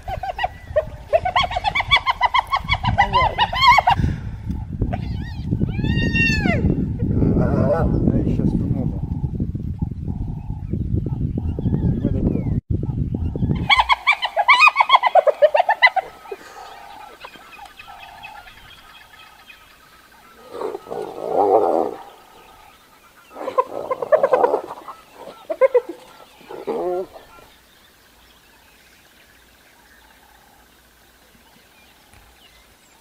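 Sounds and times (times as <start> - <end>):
hyenas giggling cackles: 0.0 - 4.0, 13.6 - 17.6, 23.3 - 27.5.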